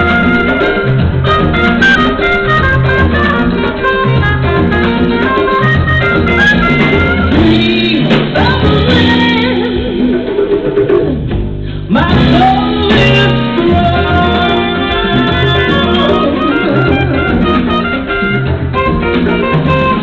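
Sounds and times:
jazz band playing: 0.0s - 20.0s
woman singing with vibrato: 7.2s - 10.4s, 11.8s - 17.4s.

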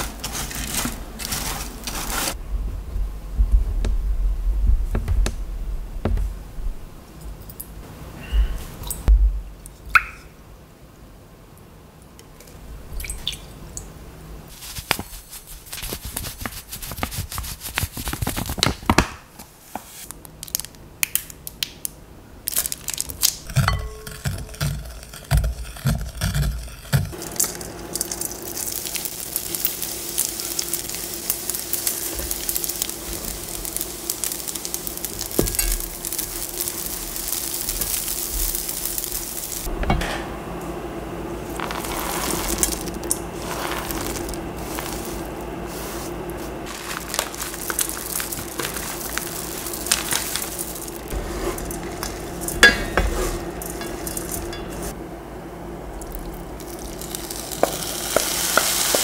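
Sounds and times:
spoon scraping glass bowl: 23.5s - 27.1s, 51.1s - 54.9s
fish sizzling in a pan: 27.4s - 39.7s, 46.7s - 51.2s, 56.7s - 59.0s
spatula turning food in pan: 56.6s - 59.0s.

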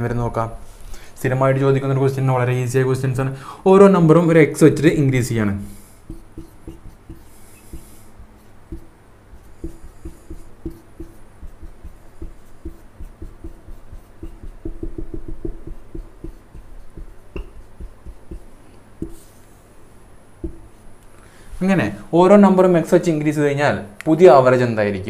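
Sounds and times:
marker pen writing on whiteboard: 5.7s - 19.6s, 20.4s - 21.0s.

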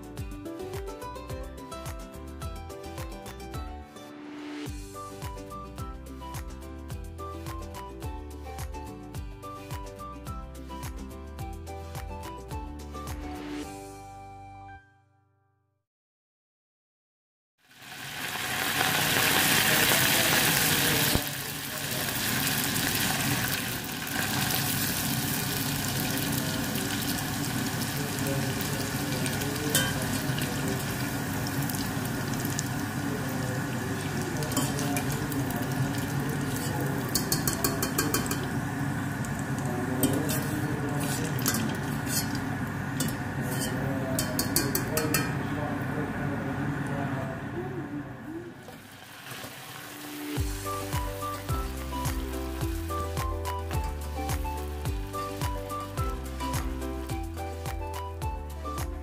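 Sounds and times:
rice sizzling in hot oil: 17.6s - 45.0s, 48.7s - 57.5s
wire strainer clicking in pot: 37.1s - 38.5s.

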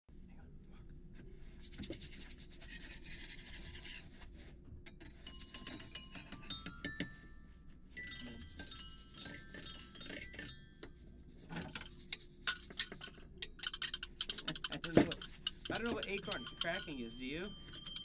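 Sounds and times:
bell-like tones: 5.3s - 11.8s, 15.2s - 18.0s.

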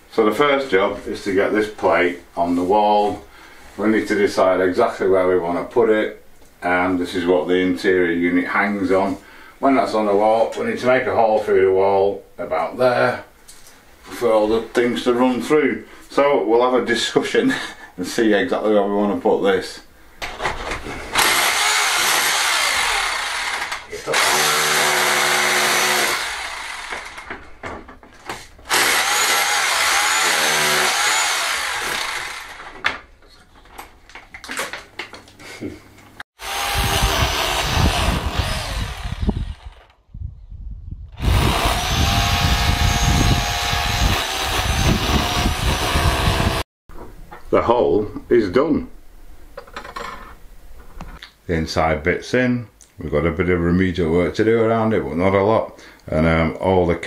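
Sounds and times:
electric drill boring into wall: 21.2s - 27.4s, 28.7s - 32.8s, 36.4s - 40.0s, 41.2s - 46.6s.

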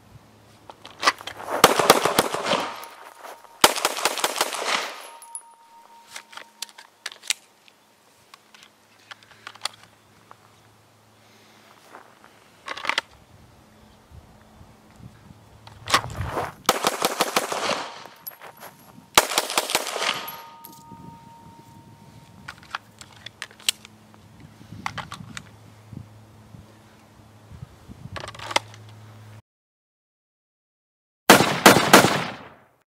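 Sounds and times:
pistol shots in rapid strings: 31.3s - 32.5s.

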